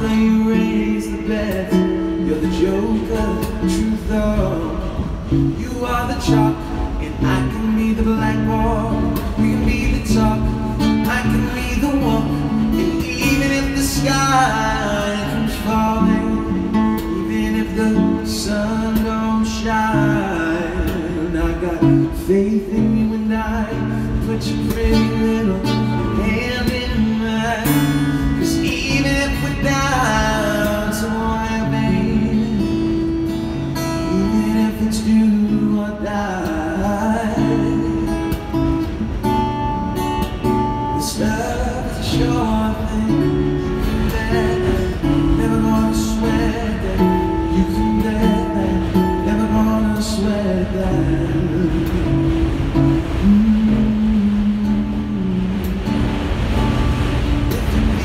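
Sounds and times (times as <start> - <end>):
acoustic guitar strumming: 0.0 - 58.0
man singing: 0.0 - 58.0.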